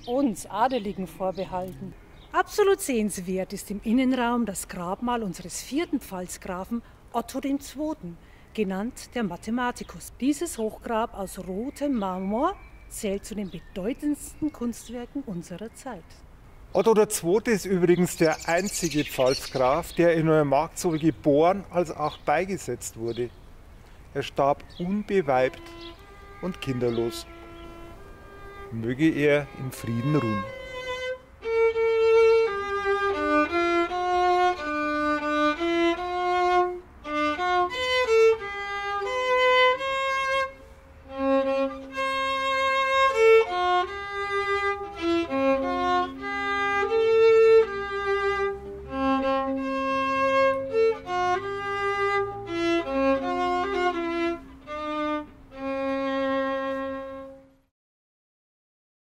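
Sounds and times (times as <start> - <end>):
solo violin melody: 24.2 - 57.7.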